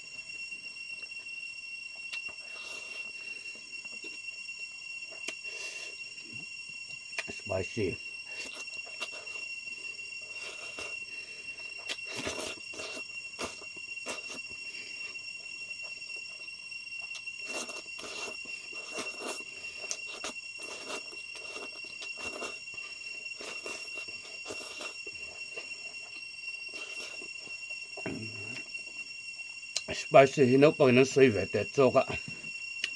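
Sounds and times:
high-pitched whine: 0.0s - 32.9s
person slurping and chewing: 11.9s - 14.5s, 17.4s - 25.6s, 26.7s - 27.3s.

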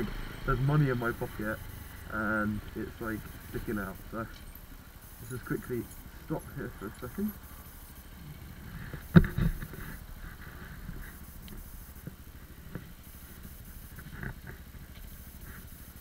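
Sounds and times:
motorcycle engine idling: 0.0s - 16.0s
faint clicks: 11.0s - 15.6s.

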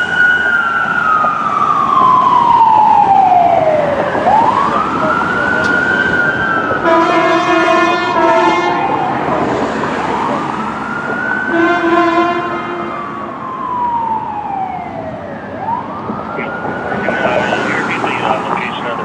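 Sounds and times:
ambulance siren wailing: 0.0s - 19.0s
horn blasts: 6.8s - 9.0s, 11.5s - 13.0s.

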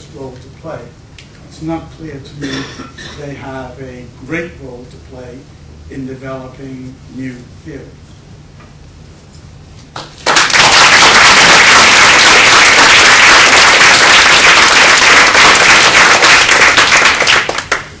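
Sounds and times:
audience applauding: 10.0s - 18.0s.

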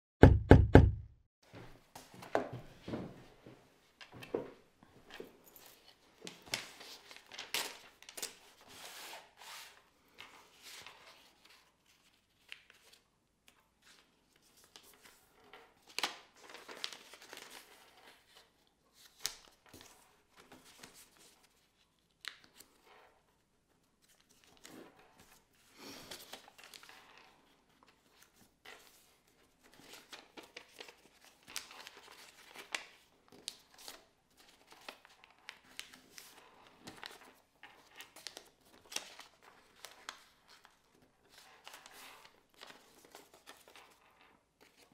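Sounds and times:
paper crinkling and rustling: 5.2s - 44.9s.

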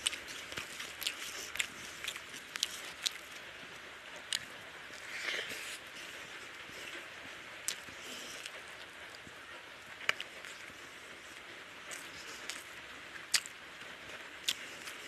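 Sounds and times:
fingers squishing rice: 0.0s - 3.4s
wet mouth clicks while chewing: 13.3s - 13.5s.

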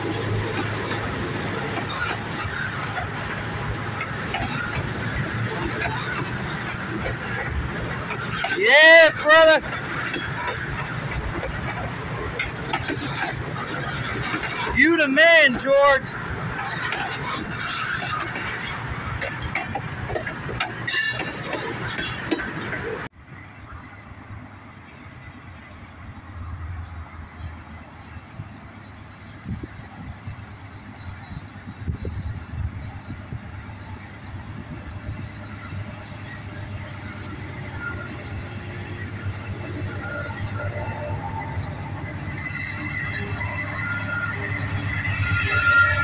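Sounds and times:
locomotive engine rumble: 0.0s - 23.1s
freight cars rolling on rails: 0.0s - 46.0s.

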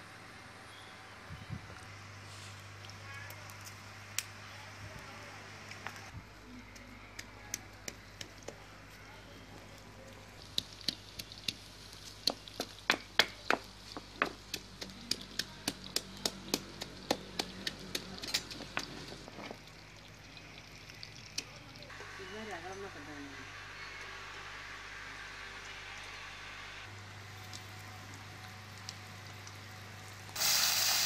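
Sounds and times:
stone pestle pounding in mortar: 12.2s - 18.8s.

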